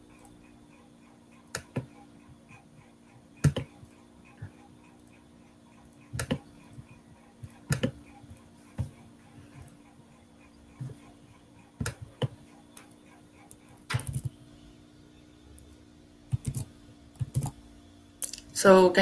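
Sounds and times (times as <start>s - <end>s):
faint steady hum: 0.0s - 19.0s
sharp computer clicks: 1.4s - 8.2s, 11.8s - 14.4s, 16.3s - 17.6s.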